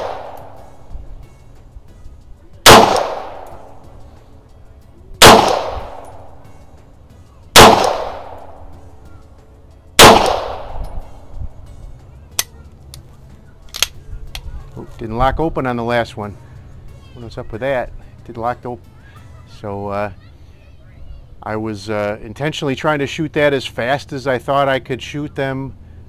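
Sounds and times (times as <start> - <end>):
pistol shots with echo: 0.0 - 0.7, 2.6 - 3.8, 5.2 - 6.4, 7.5 - 8.7, 10.0 - 11.0.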